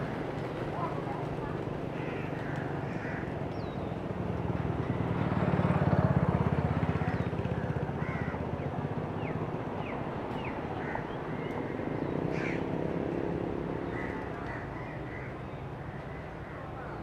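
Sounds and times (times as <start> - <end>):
vehicle engine passing: 4.2 - 7.2.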